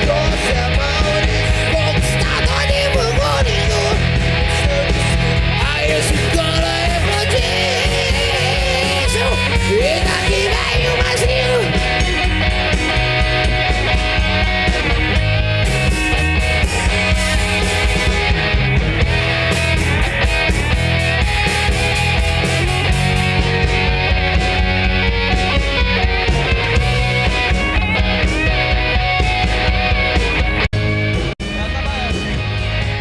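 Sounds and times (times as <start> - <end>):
person singing: 0.0 - 12.2
hard rock band playing: 0.0 - 33.0.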